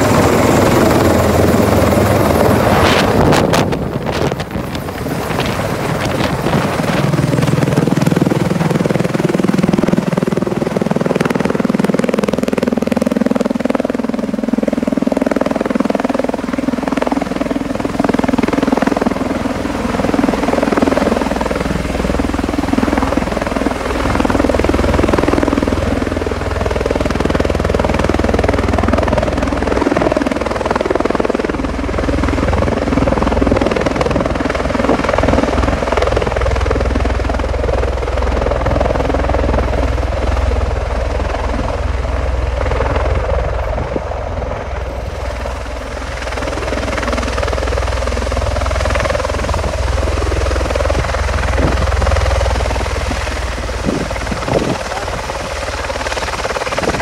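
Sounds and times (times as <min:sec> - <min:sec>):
tiltrotor aircraft rotor thrum: 0:00.0 - 0:57.0.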